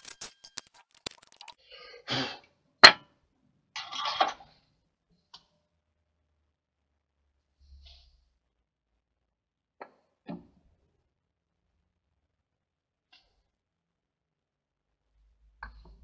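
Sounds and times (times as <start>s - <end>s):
rustling and scraping: 0.0s - 1.6s.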